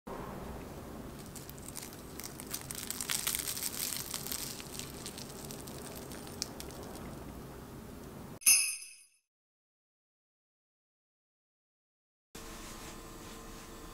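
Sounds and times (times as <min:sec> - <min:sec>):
fried crust crackling when torn: 0:01.2 - 0:07.1.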